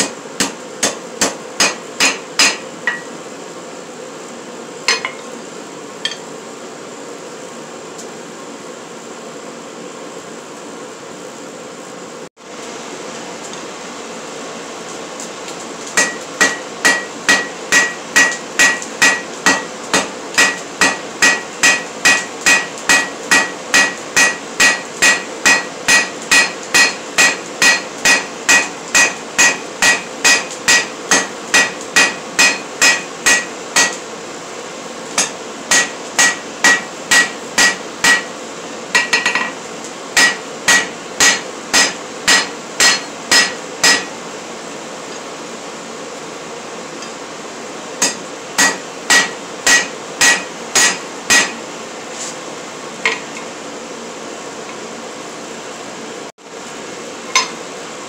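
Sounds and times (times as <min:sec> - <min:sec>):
hammer striking steel on anvil: 0:00.0 - 0:03.1, 0:04.9 - 0:05.3, 0:16.0 - 0:34.0, 0:35.2 - 0:38.4, 0:39.0 - 0:39.6, 0:40.2 - 0:44.2, 0:48.0 - 0:51.6, 0:57.3 - 0:57.6
steady hum: 0:00.0 - 0:54.2.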